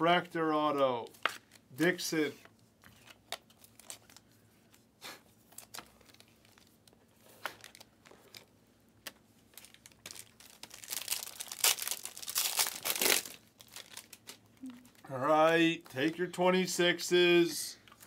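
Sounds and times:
foil wrapper crinkling and tearing: 0:03.3 - 0:04.2, 0:05.5 - 0:06.8, 0:07.4 - 0:08.5, 0:09.5 - 0:14.8.

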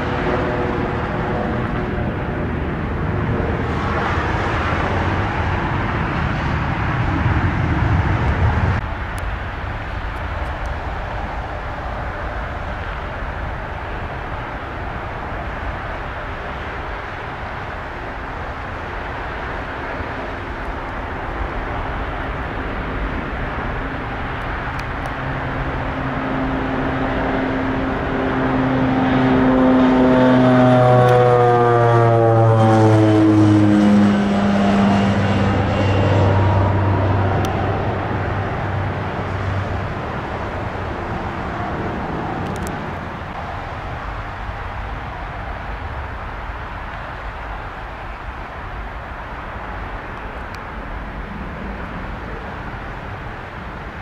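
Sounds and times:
jet engines roaring: 0:00.0 - 0:54.0
engine whine falling in pitch: 0:23.2 - 0:43.4.

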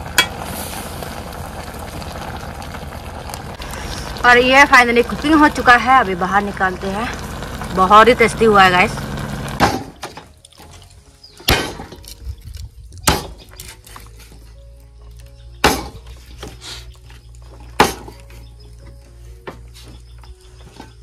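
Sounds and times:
faint background music: 0:03.6 - 0:21.0
knife chopping meat on wood block: 0:13.0 - 0:13.4, 0:15.6 - 0:16.0, 0:17.8 - 0:18.2.

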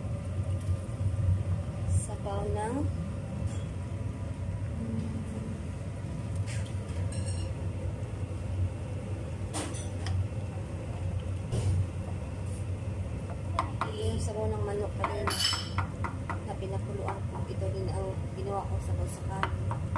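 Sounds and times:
rice boiling in a pot: 0:00.0 - 0:04.8, 0:05.5 - 0:19.9
steady low rumble: 0:00.0 - 0:06.4
wooden spoon knocking on pot: 0:13.2 - 0:14.0, 0:15.0 - 0:17.5, 0:19.4 - 0:19.9.

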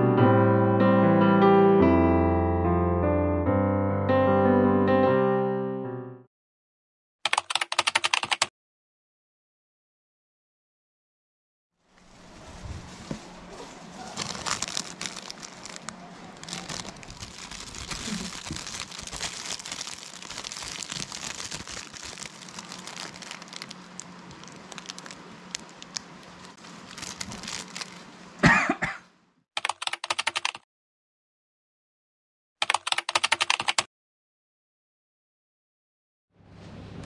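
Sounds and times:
keyboard typing sound effect: 0:07.3 - 0:08.5, 0:29.6 - 0:30.6, 0:32.6 - 0:33.9
plastic bag crinkling: 0:12.0 - 0:28.2
person coughing: 0:28.4 - 0:29.1.

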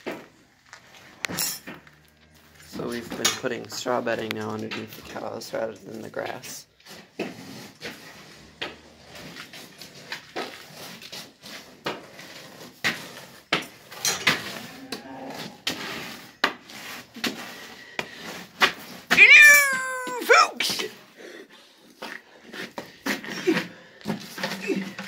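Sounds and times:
shovel scraping concrete floor: 0:00.0 - 0:21.1, 0:21.8 - 0:25.0
animal cry: 0:19.1 - 0:20.6.

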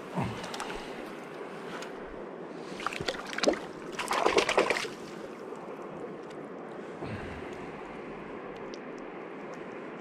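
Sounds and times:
river water running: 0:00.0 - 0:10.0
water splashing: 0:02.8 - 0:05.3.

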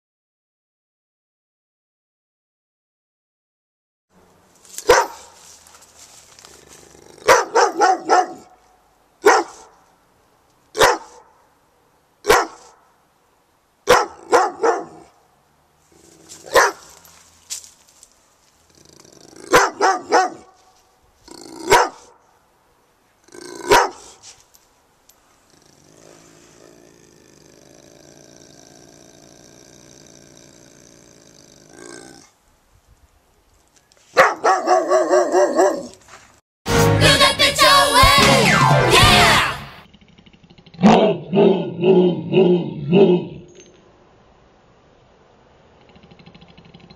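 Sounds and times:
dog barking: 0:04.8 - 0:05.4, 0:07.2 - 0:08.6, 0:09.2 - 0:09.8, 0:10.8 - 0:11.4, 0:12.2 - 0:12.9, 0:13.9 - 0:15.2, 0:16.4 - 0:17.0, 0:19.5 - 0:20.6, 0:21.6 - 0:22.2, 0:23.6 - 0:24.2, 0:34.1 - 0:36.0.

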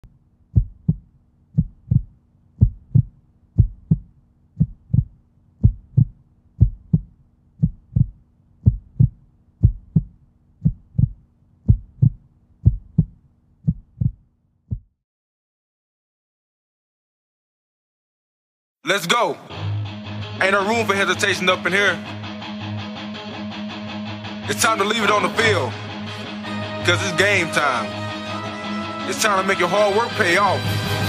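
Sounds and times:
heartbeat double thumps: 0:00.5 - 0:15.0.

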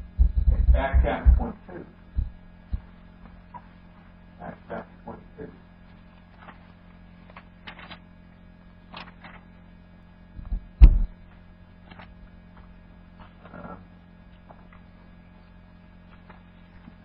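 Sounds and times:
low electrical hum: 0:00.0 - 0:17.0
thump against microphone: 0:10.4 - 0:11.1.

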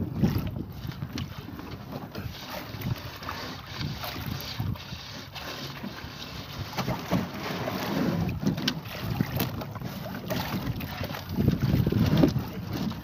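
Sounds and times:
wind buffeting microphone: 0:00.0 - 0:05.2, 0:08.1 - 0:13.0.

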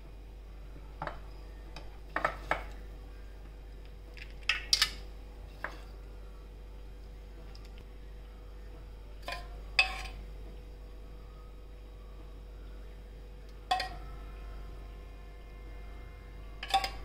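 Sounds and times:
metal spoon clinking on steel bowls: 0:13.7 - 0:14.0, 0:16.6 - 0:17.0.

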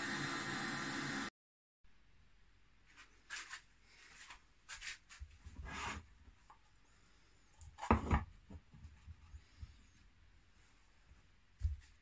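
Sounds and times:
wood scraping on workbench: 0:05.5 - 0:06.1.

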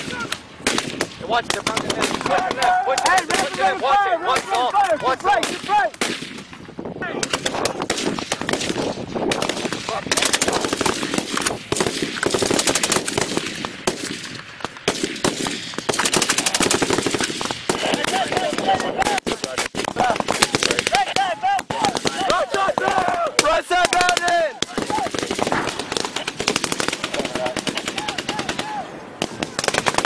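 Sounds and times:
single gunshots: 0:00.0 - 0:02.5, 0:05.4 - 0:06.5, 0:07.2 - 0:30.0
automatic machine gun fire: 0:07.3 - 0:14.2, 0:14.9 - 0:18.8, 0:24.8 - 0:30.0.

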